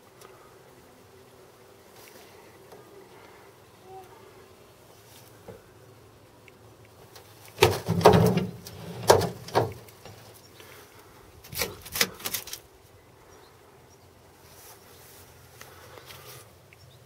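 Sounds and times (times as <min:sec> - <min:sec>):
knocks and clunks on steel: 0:07.6 - 0:09.8.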